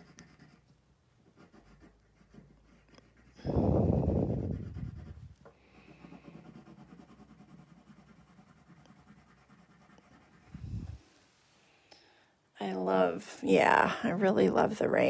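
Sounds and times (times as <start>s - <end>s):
pencil scratching on paper: 0.0s - 11.0s.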